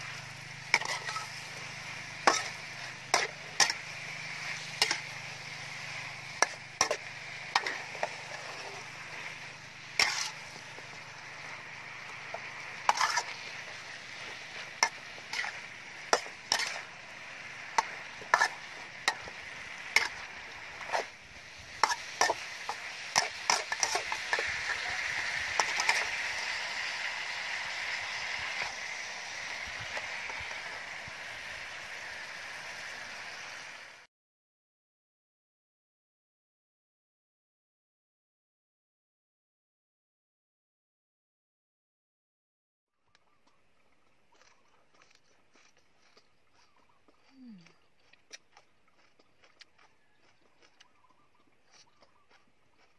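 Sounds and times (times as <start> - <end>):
metal spatula scraping a wok: 0.0 - 32.9
stir-fry sizzling in a wok: 0.0 - 34.1.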